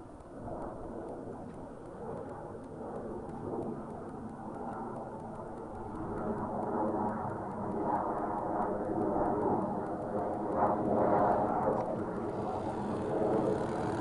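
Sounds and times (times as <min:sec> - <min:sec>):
model plane engine buzzing: 0:03.4 - 0:14.0.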